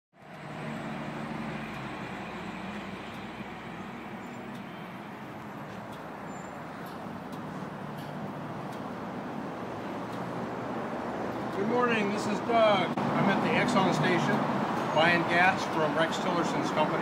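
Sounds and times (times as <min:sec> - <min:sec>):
road traffic noise: 0:00.1 - 0:17.0
low engine hum: 0:00.2 - 0:11.8.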